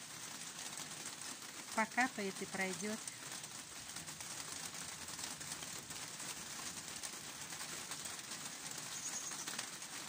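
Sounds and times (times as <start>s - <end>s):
light rain on leaves and paving: 0.0s - 10.0s
high bird chirp: 8.9s - 9.6s.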